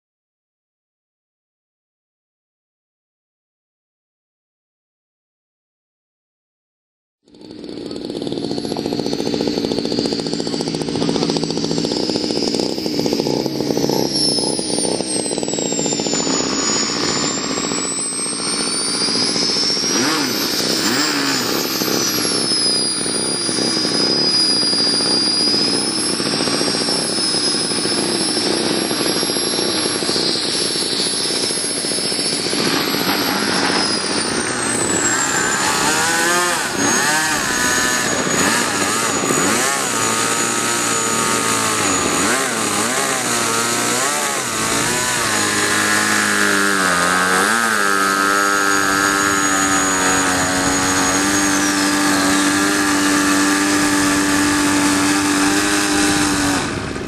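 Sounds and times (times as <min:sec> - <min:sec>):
model airplane engine running: 0:07.3 - 0:57.0.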